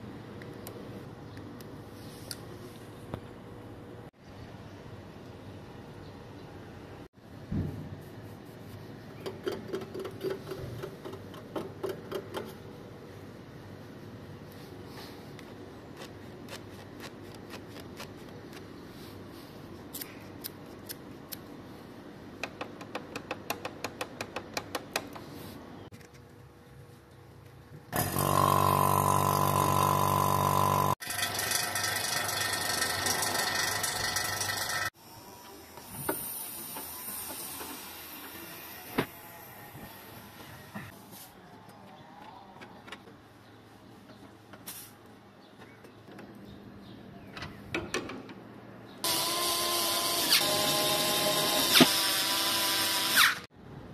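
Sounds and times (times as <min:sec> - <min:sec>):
vacuum pump humming: 0:28.0 - 0:34.8.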